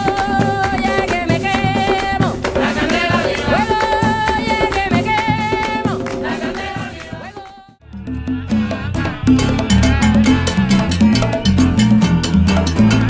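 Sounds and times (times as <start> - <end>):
hand drums beat: 0.0 - 13.0
melody with bending pitch: 7.8 - 12.8.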